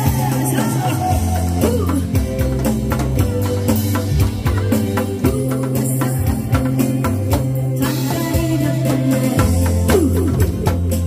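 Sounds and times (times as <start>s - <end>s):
drum kit beat: 0.0s - 11.0s
steady bass line: 0.0s - 11.0s.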